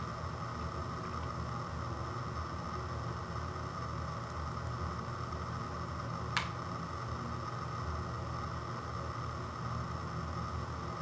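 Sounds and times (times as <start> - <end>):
low hum and hiss: 0.0 - 11.0.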